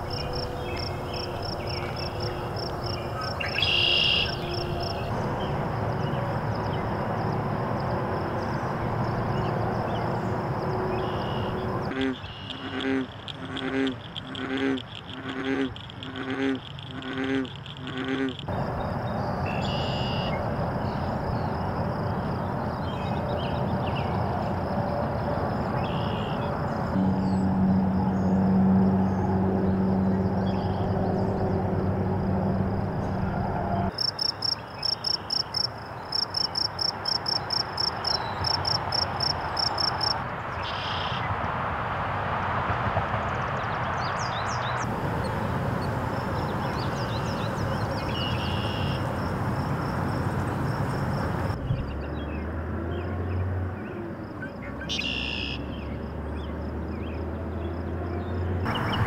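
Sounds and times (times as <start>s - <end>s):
birds chirping: 0.0s - 6.9s, 44.0s - 54.0s, 54.6s - 59.0s
frog croaking: 11.1s - 18.7s, 33.9s - 40.2s.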